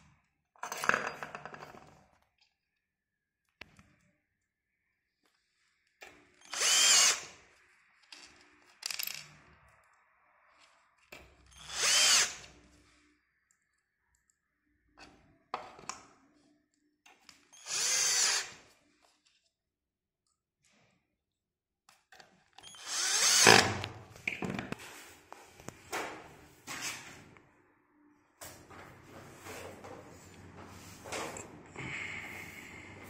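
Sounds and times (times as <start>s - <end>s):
cordless drill driving screws: 6.4s - 7.4s, 11.5s - 12.5s, 17.5s - 18.6s, 22.6s - 23.7s.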